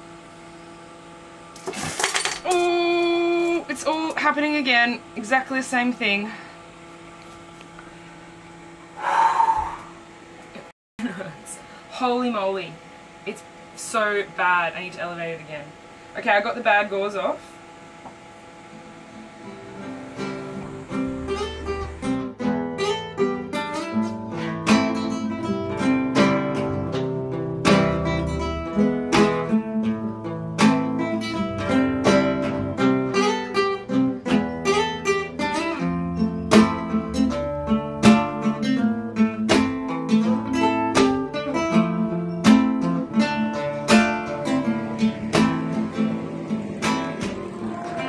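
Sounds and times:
acoustic guitar picking: 18.0s - 48.0s.

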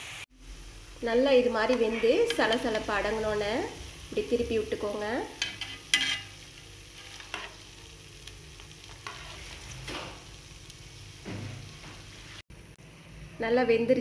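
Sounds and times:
deep-frying sizzle in hot oil: 0.0s - 14.0s
metal utensil scraping pan: 1.6s - 3.1s, 5.3s - 7.7s, 8.8s - 10.1s.

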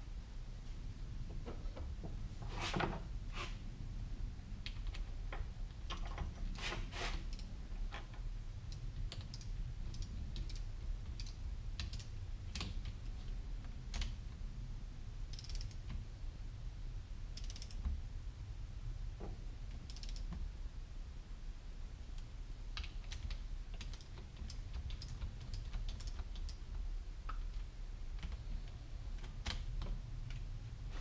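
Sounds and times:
torque wrench ratchet clicking: 15.3s - 15.8s, 17.4s - 17.8s.

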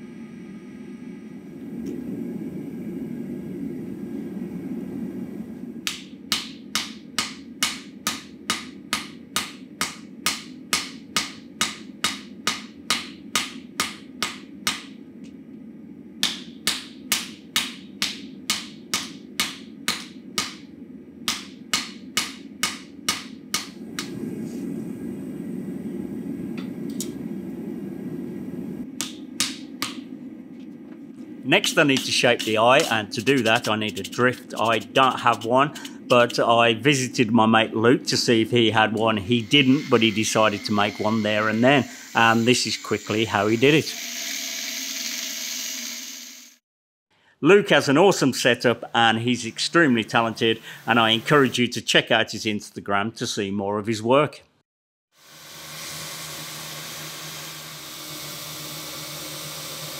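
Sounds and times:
steady low hum: 0.0s - 44.0s, 47.4s - 52.7s
hammer striking steel on anvil: 5.8s - 15.0s, 16.2s - 20.7s, 21.3s - 23.8s, 29.0s - 30.0s.

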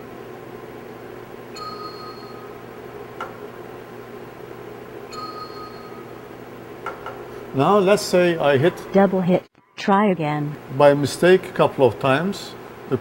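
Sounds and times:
steady low hum: 0.0s - 13.0s
short computer beep: 1.6s - 2.5s.

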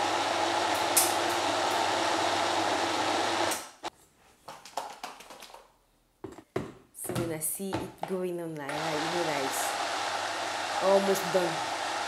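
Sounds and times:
blender motor running: 0.0s - 3.9s, 8.7s - 12.0s.

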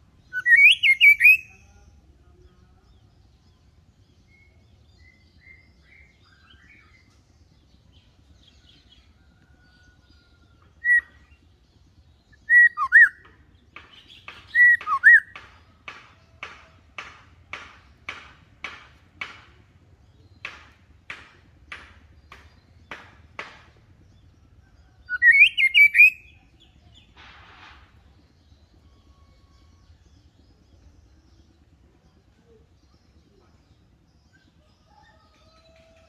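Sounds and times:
bird whistled calls: 0.3s - 1.6s, 10.8s - 11.2s, 12.4s - 13.2s, 25.0s - 26.4s.

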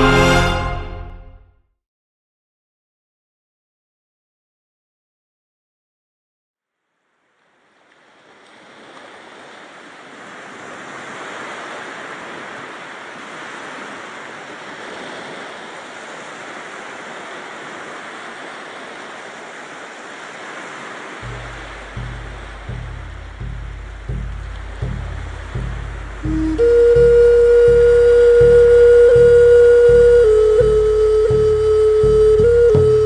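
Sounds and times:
rushing surf-like noise: 8.0s - 33.0s
deep drum beats: 21.2s - 33.0s.

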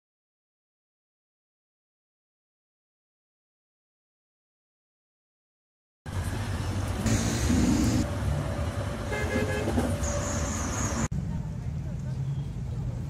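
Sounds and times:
road traffic engines rumbling: 6.1s - 13.0s
vehicle horn tooting: 9.1s - 10.6s.

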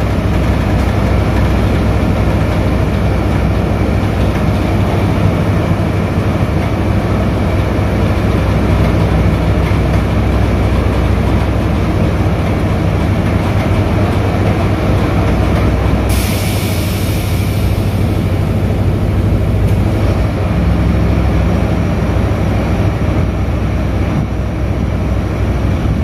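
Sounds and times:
heavy diesel engine rumbling: 0.0s - 26.0s
loud hiss: 16.0s - 20.2s.

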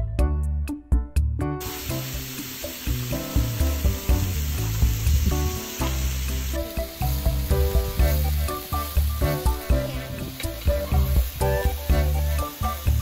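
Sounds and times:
background music: 0.0s - 13.0s
food frying and sizzling: 1.6s - 13.0s.

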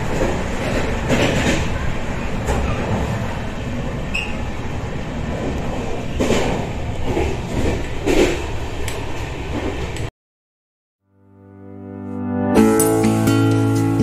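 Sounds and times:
train rumbling on rails: 0.0s - 10.1s.

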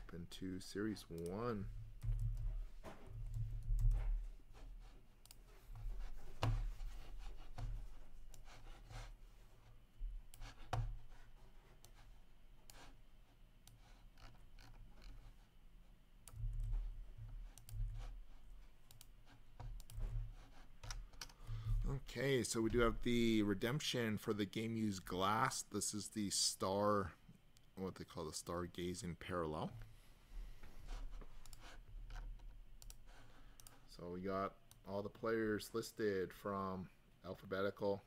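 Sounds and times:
keyboard and mouse clicks: 17.5s - 18.1s.

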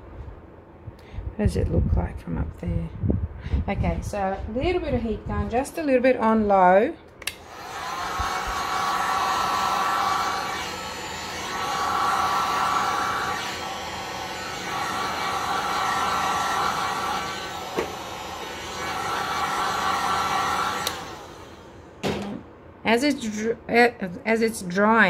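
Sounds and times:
heat gun fan hissing and whining: 7.2s - 22.3s.

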